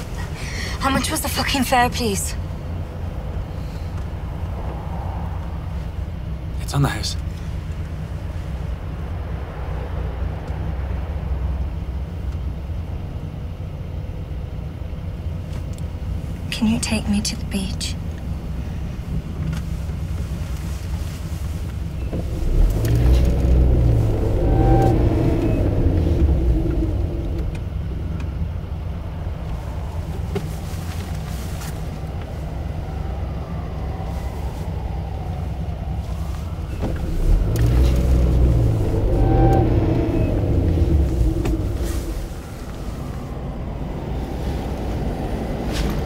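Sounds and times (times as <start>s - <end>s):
car road and engine rumble: 0.0s - 46.0s.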